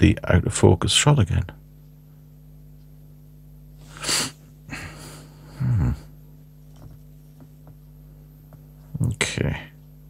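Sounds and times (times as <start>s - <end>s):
man grunting: 5.6s - 6.1s.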